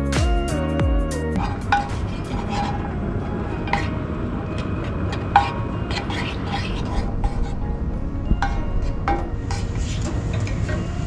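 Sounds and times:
utensils clinking and scraping pan: 8.4s - 10.6s.

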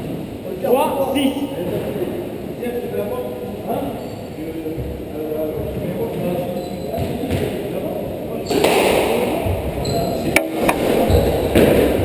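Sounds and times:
squash ball cracks: 10.4s - 11.0s.

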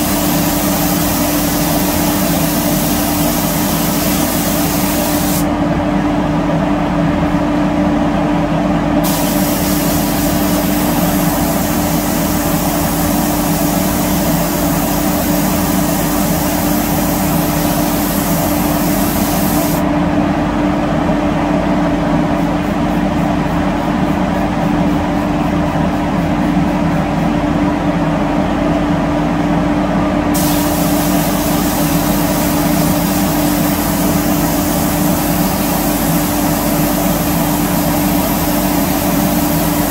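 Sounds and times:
spray gun hissing: 0.0s - 5.5s, 9.0s - 19.8s, 30.4s - 39.9s
steady machine hum: 0.0s - 39.9s.

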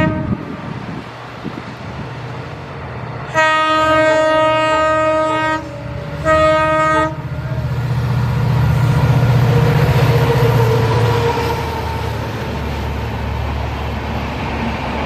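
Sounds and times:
locomotive horn blasts: 0.0s - 0.6s, 3.3s - 7.7s, 9.4s - 12.2s
locomotive engine drone: 0.0s - 15.0s.

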